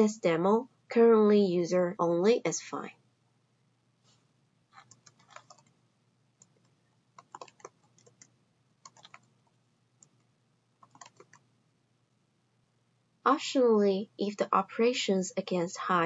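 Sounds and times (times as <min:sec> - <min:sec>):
computer keyboard typing: 0:04.8 - 0:05.8, 0:06.4 - 0:09.3, 0:10.8 - 0:11.5.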